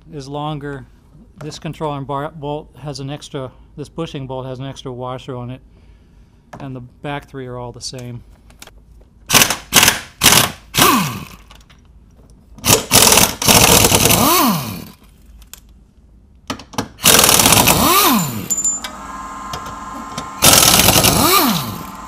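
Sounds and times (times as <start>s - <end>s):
pneumatic impact wrench hammering: 9.3s - 11.5s, 12.6s - 15.0s, 16.9s - 22.0s.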